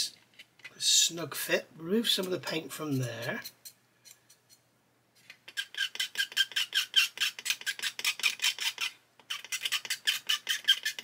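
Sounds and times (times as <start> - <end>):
tool scraping paint with squeaks: 5.2 - 11.0.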